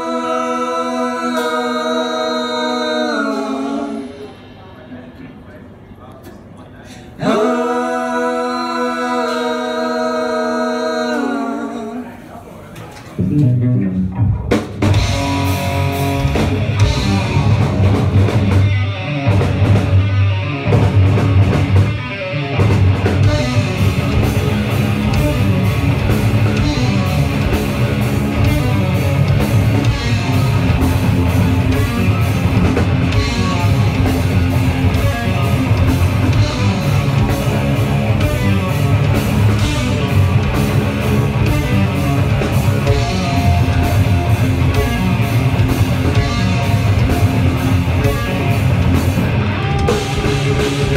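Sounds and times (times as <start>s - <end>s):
heavy rock band playing: 13.2s - 50.9s.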